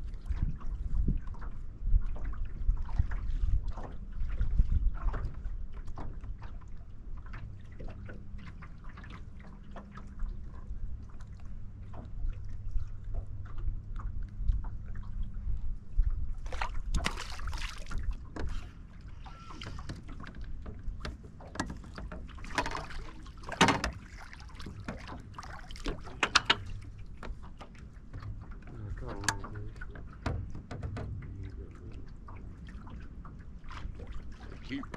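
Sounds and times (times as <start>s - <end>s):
low steady hum: 0.0s - 34.9s
water lapping against boat hull: 0.0s - 34.9s
knocks and clicks: 25.9s - 26.7s.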